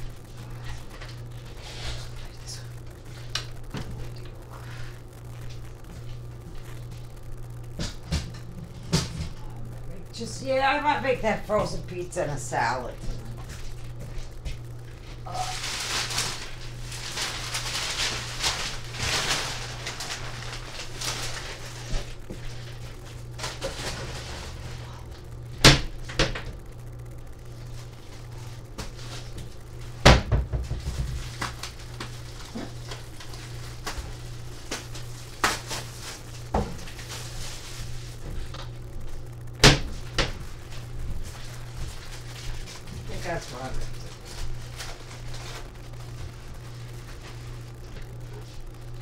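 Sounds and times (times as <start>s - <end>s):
steady low hum: 0.0s - 49.0s
cupboard knocks and thuds: 30.0s - 31.0s.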